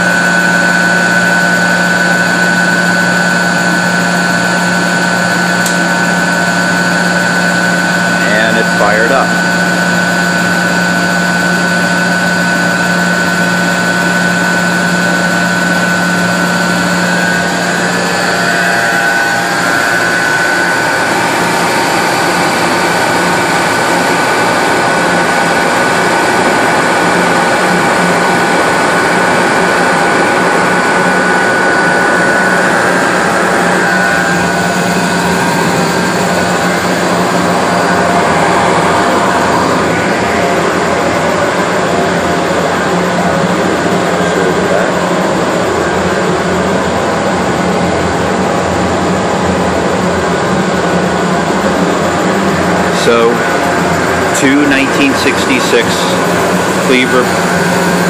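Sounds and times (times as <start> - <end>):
boiler burners roaring: 0.0 - 58.0
high whine: 0.0 - 58.0
steady low hum: 0.0 - 58.0.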